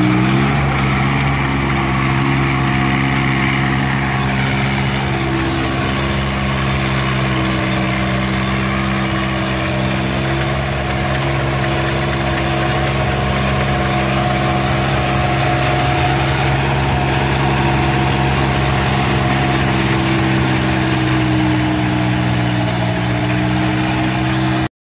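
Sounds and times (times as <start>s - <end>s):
tractor diesel engine under load: 0.0s - 24.7s.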